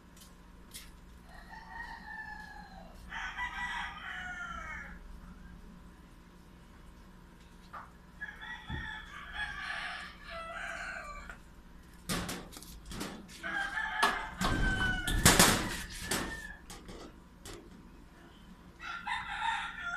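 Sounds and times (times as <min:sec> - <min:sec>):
rooster crowing: 0:01.2 - 0:05.0, 0:08.2 - 0:11.4, 0:13.3 - 0:16.8, 0:18.8 - 0:19.9
metal door banging shut: 0:14.4 - 0:16.3.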